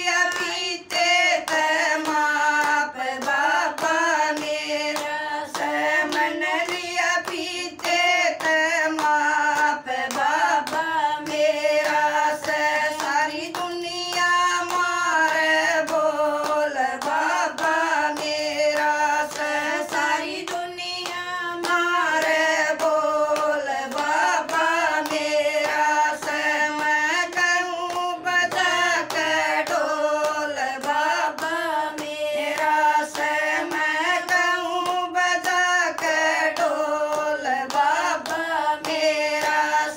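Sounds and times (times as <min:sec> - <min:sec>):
hand clapping: 0:00.0 - 0:39.9
women singing devotional song: 0:00.0 - 0:39.9.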